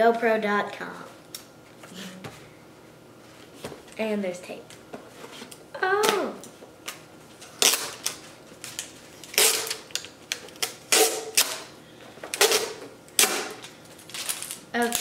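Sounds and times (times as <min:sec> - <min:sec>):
tape peeled off plastic: 0:07.6 - 0:11.6.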